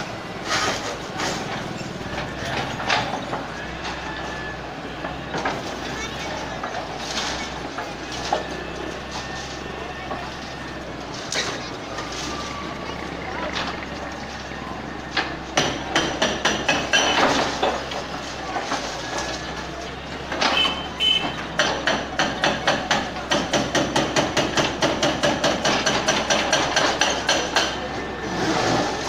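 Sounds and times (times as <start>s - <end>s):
hydraulic breaker pounding concrete: 11.2s - 19.6s, 20.2s - 29.0s.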